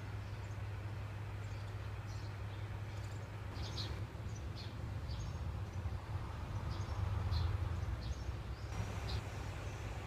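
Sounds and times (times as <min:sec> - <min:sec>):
small bird chirping: 0:01.4 - 0:06.0.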